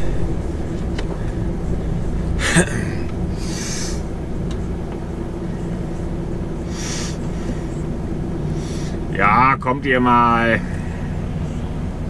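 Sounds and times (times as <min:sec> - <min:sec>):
diesel engine hum: 0:00.0 - 0:12.0
short air hisses: 0:06.7 - 0:07.2.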